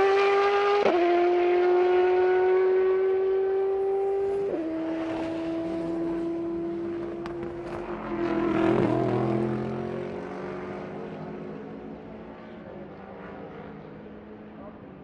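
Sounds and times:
race car engine accelerating: 0.0 - 10.2.

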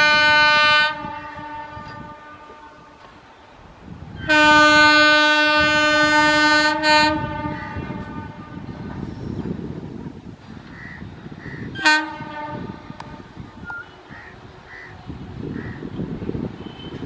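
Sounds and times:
locomotive horn blast: 0.0 - 3.0, 4.2 - 8.9, 11.7 - 14.1
passing train rumble: 0.0 - 17.0.

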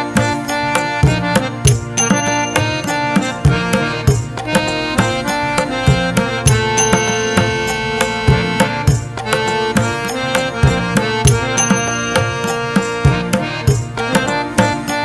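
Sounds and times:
sustained melodic tones: 0.0 - 15.0.

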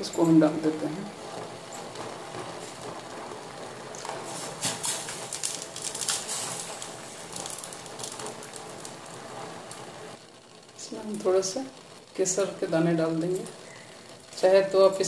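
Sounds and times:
steady hiss: 0.0 - 15.0
candies plopping into syrup: 3.9 - 9.8.

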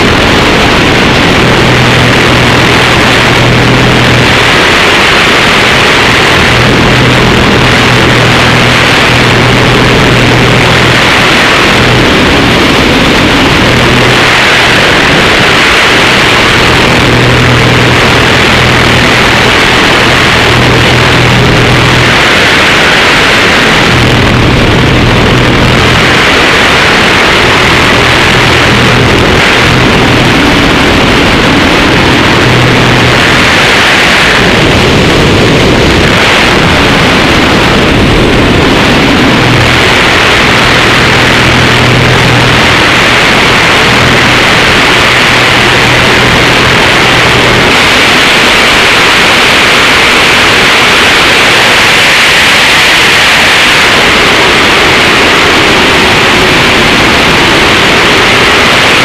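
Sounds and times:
aircraft engine and propeller drone: 0.0 - 59.0
loud wind rushing over camera: 0.0 - 59.0.

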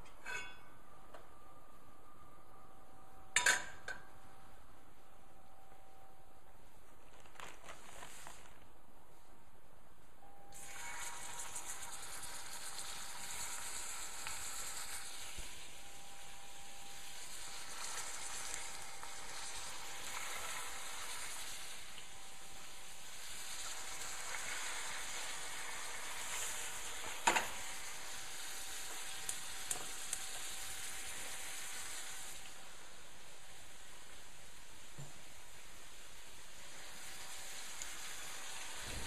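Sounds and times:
meat sizzling in hot oil: 10.6 - 39.0.

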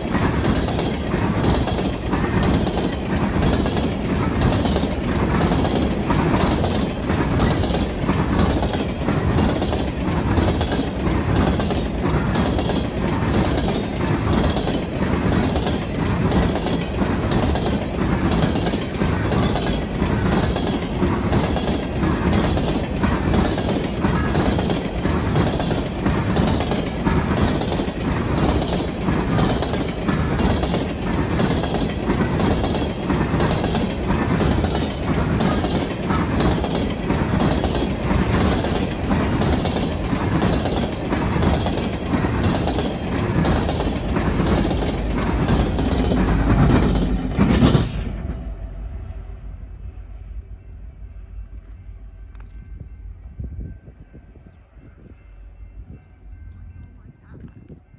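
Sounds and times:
wheels clicking over rail joints: 0.0 - 48.1
distant diesel locomotive hum: 0.0 - 57.9
freight train rolling past: 0.0 - 57.9.

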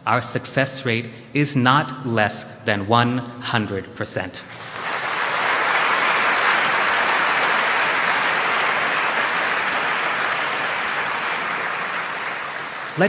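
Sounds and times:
audience applauding: 4.5 - 13.0.

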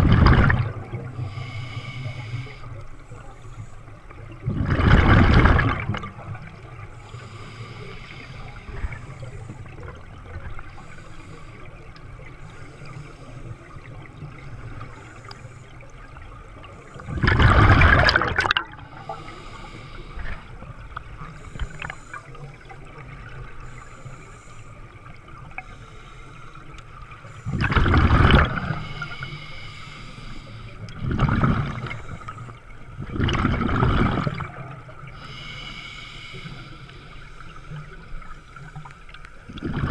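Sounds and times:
regulator bubbling exhale underwater: 0.0 - 1.6, 4.2 - 6.7, 16.9 - 20.5, 27.4 - 29.2, 30.9 - 32.4, 33.0 - 35.2, 39.5 - 39.9
low underwater rumble and hiss: 0.0 - 39.9.

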